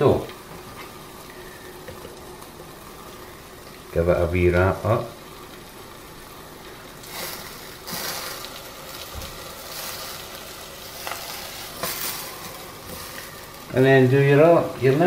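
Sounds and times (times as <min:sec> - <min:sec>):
steady hiss: 0:00.0 - 0:15.0
tortilla rustling: 0:07.0 - 0:13.7.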